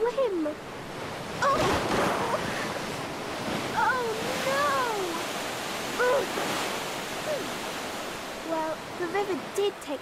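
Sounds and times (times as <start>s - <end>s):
river water rushing and lapping: 0.0s - 10.0s.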